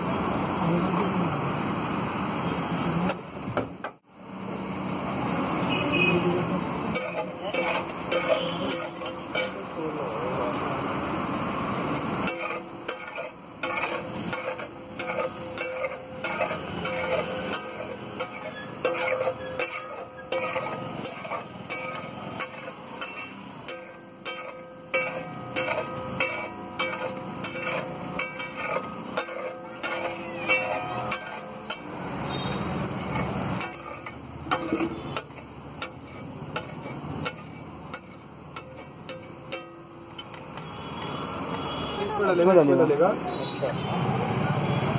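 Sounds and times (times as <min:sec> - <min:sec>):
food sizzling and bubbling: 0:00.0 - 0:44.7
metal spatula scraping griddle: 0:06.7 - 0:10.7, 0:11.3 - 0:41.9.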